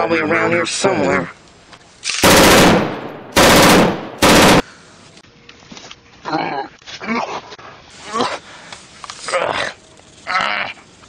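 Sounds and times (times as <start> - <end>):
gunfire bursts: 2.2 - 4.7.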